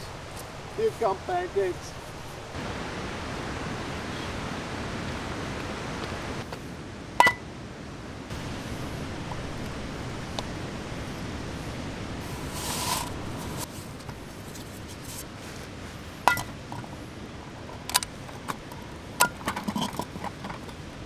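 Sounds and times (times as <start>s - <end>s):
water rushing over rapids: 0.0s - 21.0s
short hiss: 12.2s - 14.0s
metal cookware clinking: 16.3s - 16.8s.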